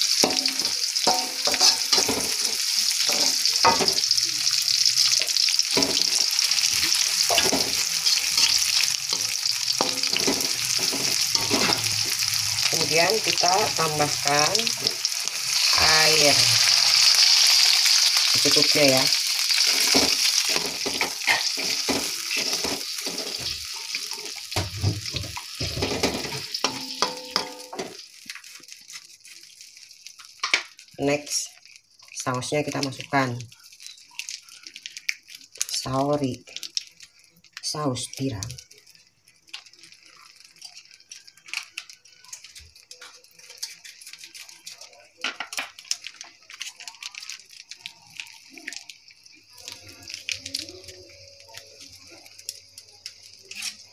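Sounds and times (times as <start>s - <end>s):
metal spatula scraping a wok: 0.0s - 4.1s, 5.0s - 12.7s, 19.3s - 24.4s, 25.6s - 27.9s
hot oil sizzling in a wok: 0.0s - 53.9s.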